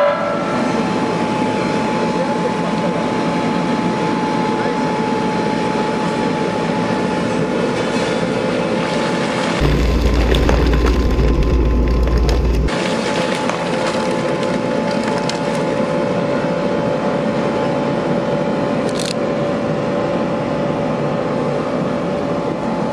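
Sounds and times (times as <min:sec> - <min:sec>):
diesel engine running: 0:09.6 - 0:12.7
heavy low rumble: 0:09.6 - 0:12.7
plastic and glass crackling: 0:09.6 - 0:12.7.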